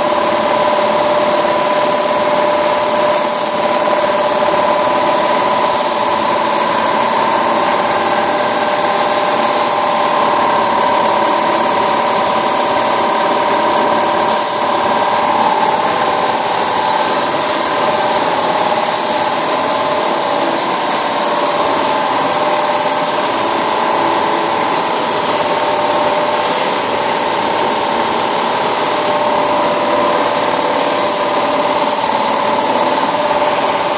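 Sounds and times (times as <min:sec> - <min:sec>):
machine hum with tones: 0:00.0 - 0:33.9
paint spray gun hissing: 0:00.0 - 0:33.9.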